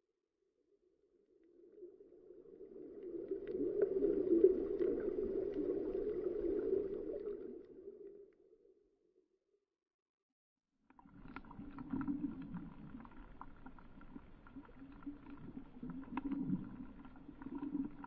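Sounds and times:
muffled underwater rushing: 0:01.9 - 0:08.2, 0:11.0 - 0:18.0
faint crackling clicks: 0:10.9 - 0:18.0.

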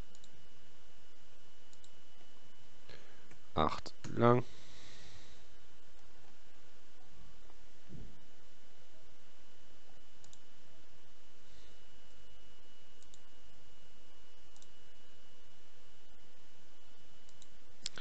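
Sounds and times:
computer mouse clicking: 0:00.1 - 0:00.3, 0:01.7 - 0:02.0, 0:10.2 - 0:10.4, 0:13.0 - 0:13.2, 0:17.3 - 0:18.0.

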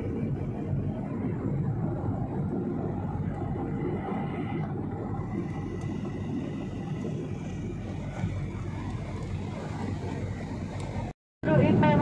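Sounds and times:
airliner cabin engine drone: 0:00.0 - 0:12.0.

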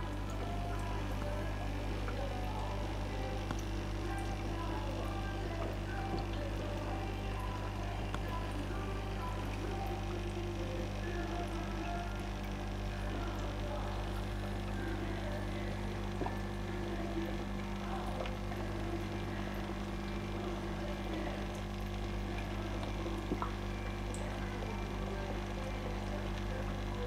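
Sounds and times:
steady low hum: 0:00.0 - 0:27.0
faint clicks: 0:03.4 - 0:04.0.

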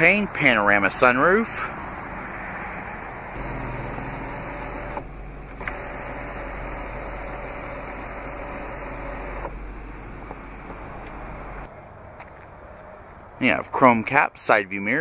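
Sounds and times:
sunroof motor whirring: 0:03.3 - 0:11.7.

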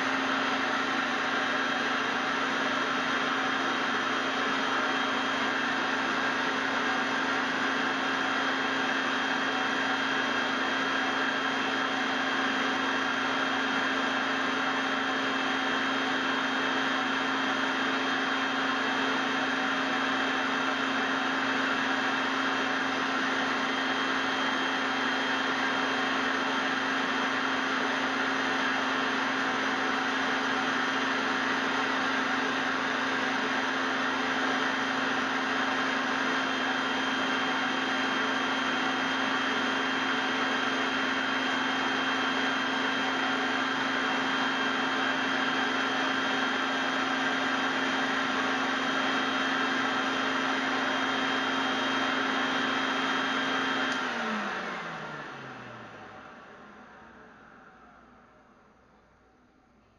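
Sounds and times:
vacuum cleaner whining: 0:00.0 - 0:59.9
motor spinning down: 0:52.0 - 0:58.6.

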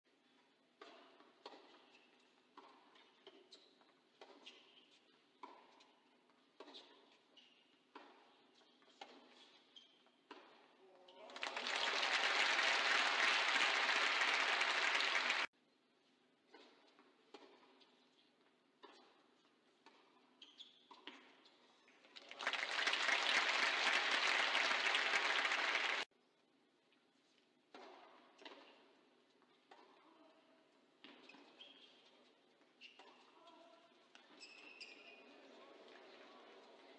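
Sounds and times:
crowd applauding: 0:11.3 - 0:15.5, 0:22.2 - 0:26.1.

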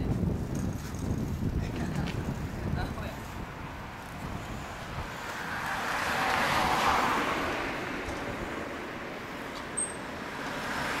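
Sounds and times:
car passing: 0:03.2 - 0:11.0
vehicle approaching: 0:03.4 - 0:11.0.

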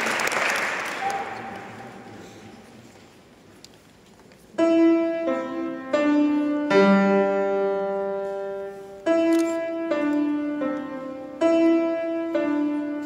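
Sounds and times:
piano notes: 0:04.6 - 0:13.0.

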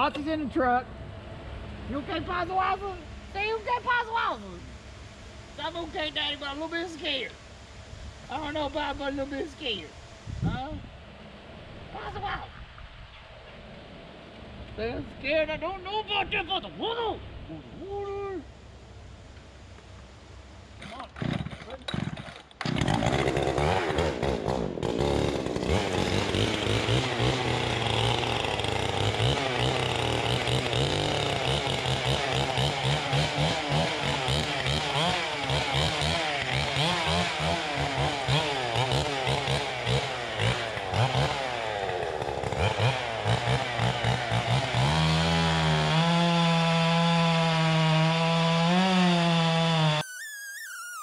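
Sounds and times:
chainsaw running: 0:20.8 - 0:50.5.

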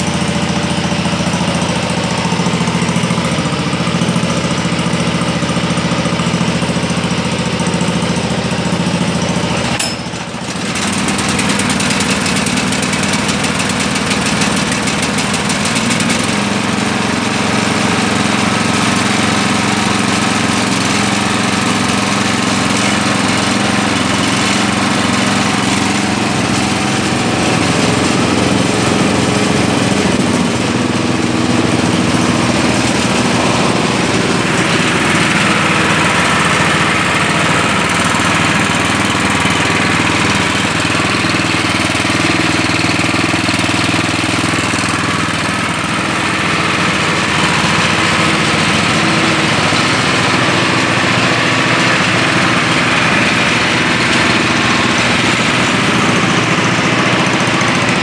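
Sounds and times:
garden tractor engines running: 0:00.0 - 0:58.0.

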